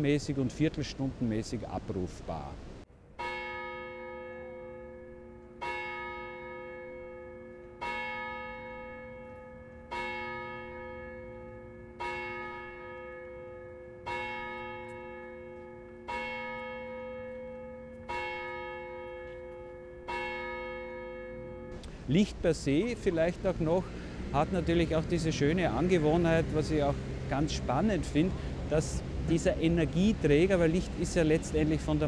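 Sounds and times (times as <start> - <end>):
clock tower bell striking: 3.2 - 21.8.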